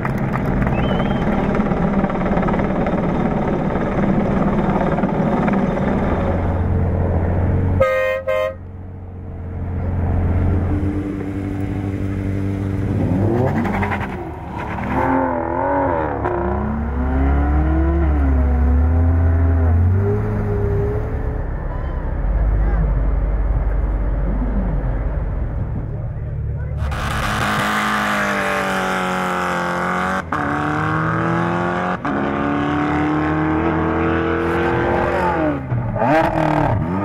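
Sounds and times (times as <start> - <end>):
vehicle engines running: 0.0 - 37.0
car horn toots: 7.8 - 8.7
engine revving: 9.6 - 25.3, 26.6 - 37.0.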